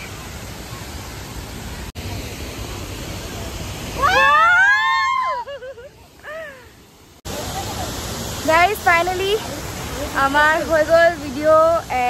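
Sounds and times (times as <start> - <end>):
waterfall rushing: 0.0 - 12.0
woman squealing: 4.0 - 5.6.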